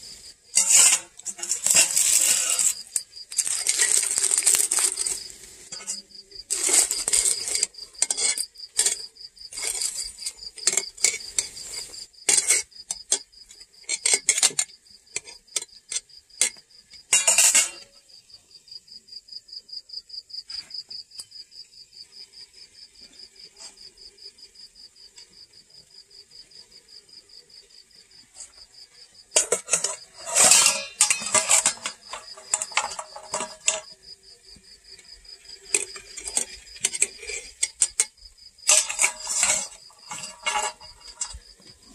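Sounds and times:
cricket trilling: 0.0 - 41.9
metal spatula scraping a pot: 0.1 - 18.0, 29.3 - 34.0, 35.0 - 41.9.

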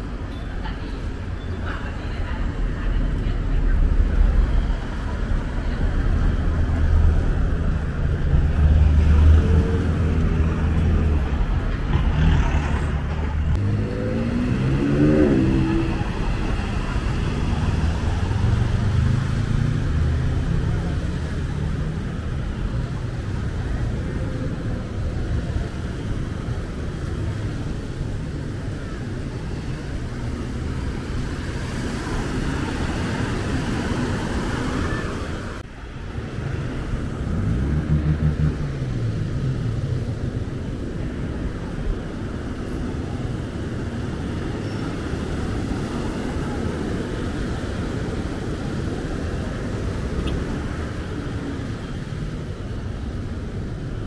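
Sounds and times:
motor traffic noise: 0.0 - 54.0
vehicle engine passing by: 5.9 - 22.0, 36.4 - 40.8.

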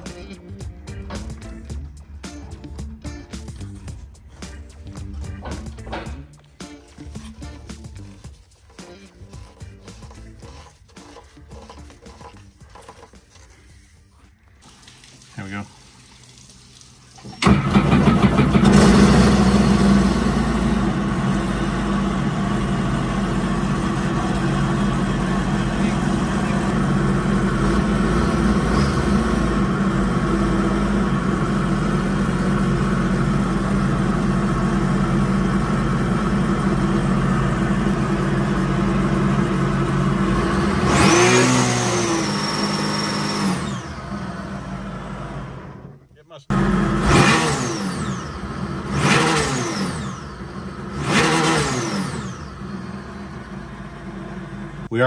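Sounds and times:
boat engine idling and revving: 17.4 - 54.9.

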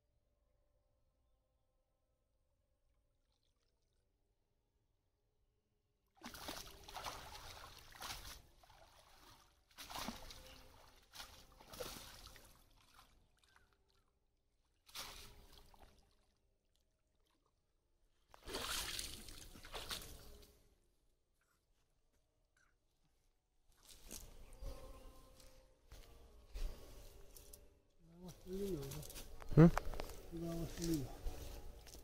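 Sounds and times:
water sloshing off a net: 6.2 - 14.1, 14.8 - 17.6, 18.3 - 20.4.

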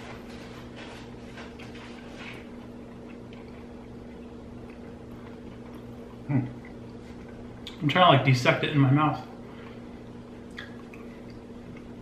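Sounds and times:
electrical hum: 0.0 - 12.0
chewing and mouth noises: 0.3 - 7.8, 9.4 - 12.0.

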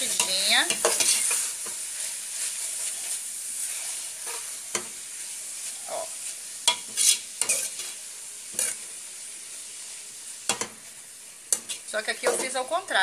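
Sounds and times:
meat sizzling in a pot: 0.0 - 13.0
spoon scraping and knocking pot: 0.1 - 1.8.

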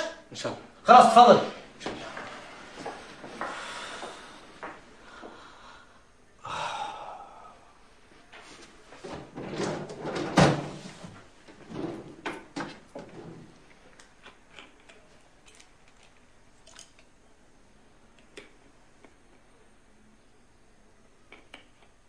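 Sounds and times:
drawer rummaging: 9.0 - 11.0.

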